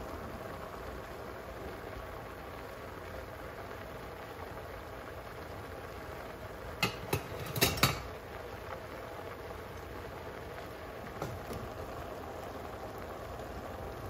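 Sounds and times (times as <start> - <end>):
food cooking hiss: 0.0 - 14.0
metal clinks of cookware: 6.8 - 8.1.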